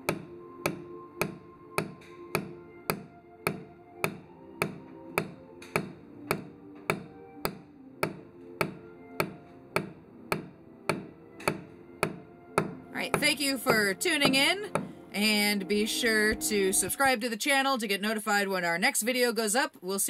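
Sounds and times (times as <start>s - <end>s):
hammer driving wooden nails: 0.0s - 14.9s.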